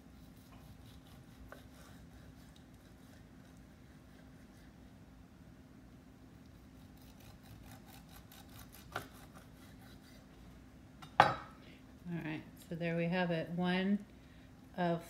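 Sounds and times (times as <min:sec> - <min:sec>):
knife sawing through meat: 0:00.0 - 0:04.8, 0:06.7 - 0:10.3.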